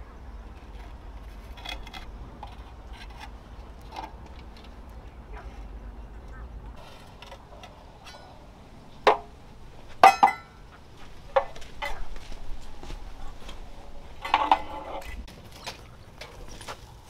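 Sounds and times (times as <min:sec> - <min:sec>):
metal tools clinking: 0:10.0 - 0:10.6.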